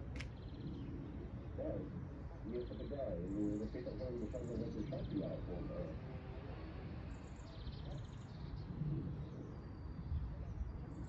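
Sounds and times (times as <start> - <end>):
songbirds chirping and trilling: 0.0 - 11.0.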